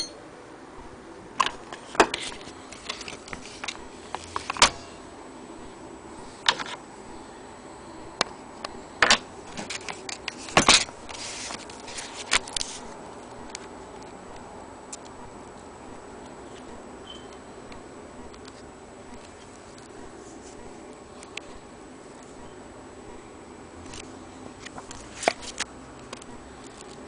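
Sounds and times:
paper rustle: 1.7 - 4.7, 9.5 - 13.0, 23.9 - 25.7.

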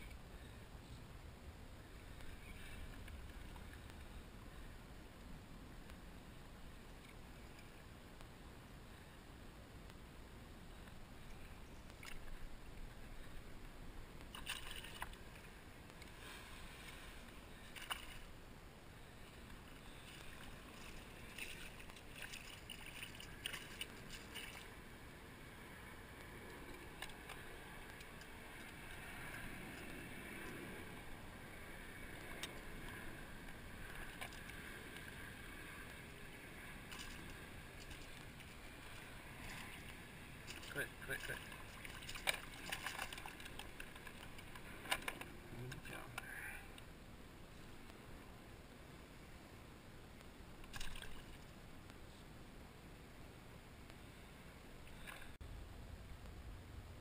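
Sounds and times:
water sloshing and splashing: 11.3 - 13.4, 14.2 - 18.4, 19.4 - 25.0, 32.1 - 46.0, 50.6 - 51.6.

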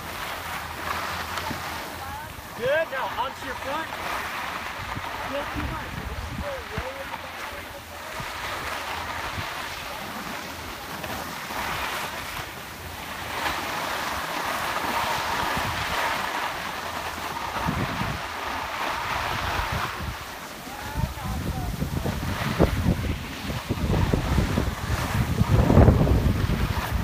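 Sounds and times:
skis scraping over snow: 0.0 - 27.0
wind on the microphone: 4.7 - 12.5, 14.9 - 16.5, 17.2 - 27.0.

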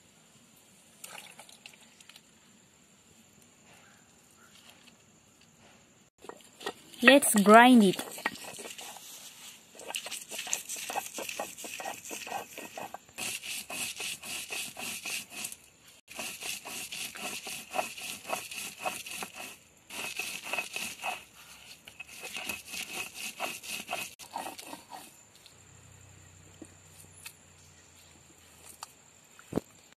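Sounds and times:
stone roller grinding on stone: 6.2 - 25.2.

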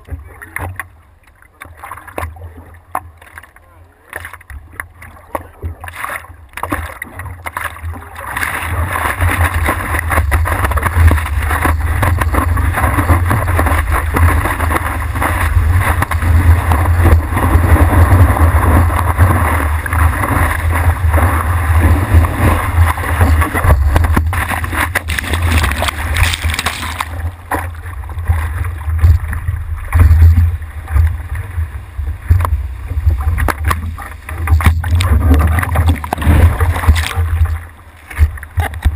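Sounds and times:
water sloshing against camera housing: 0.0 - 28.1, 32.3 - 38.9
rushing whitewater: 5.6 - 32.1.

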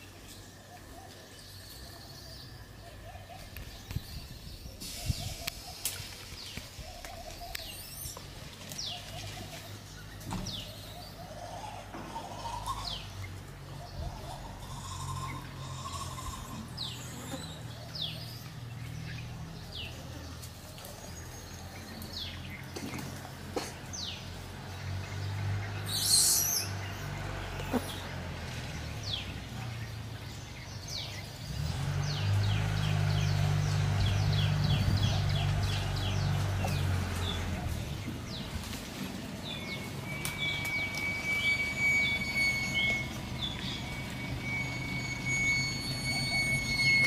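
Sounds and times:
small birds chirping: 0.0 - 47.0.

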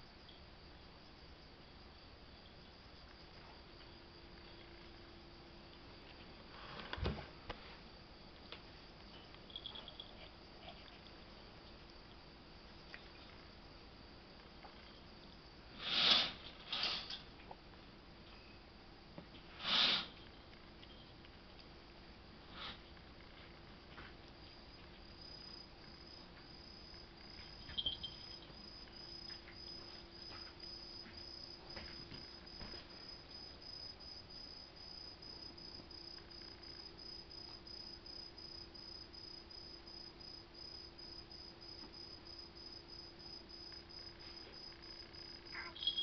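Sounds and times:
high insect chirp: 0.0 - 7.2, 7.9 - 17.4, 24.0 - 46.0
low steady hum: 0.0 - 15.7, 20.1 - 46.0
cat collar bell jingle: 9.5 - 10.9, 27.4 - 28.6, 45.5 - 46.0.

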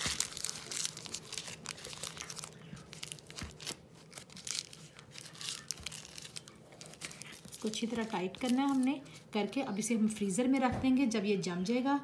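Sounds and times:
paper crinkling and rustling: 0.0 - 9.3.

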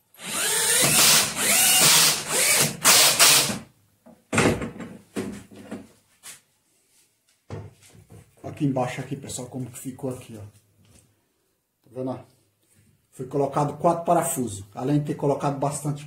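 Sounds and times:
drill-driver driving screws into wood: 0.2 - 3.6.

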